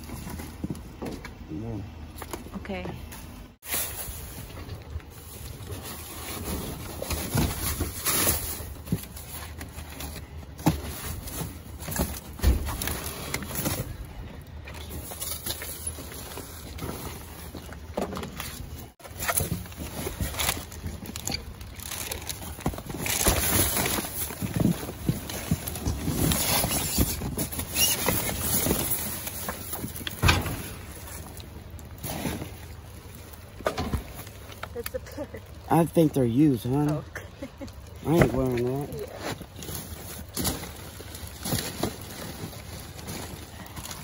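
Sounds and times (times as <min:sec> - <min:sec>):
plastic bags crinkling: 0:03.7 - 0:44.0
cardboard boxes scraping: 0:22.4 - 0:31.3.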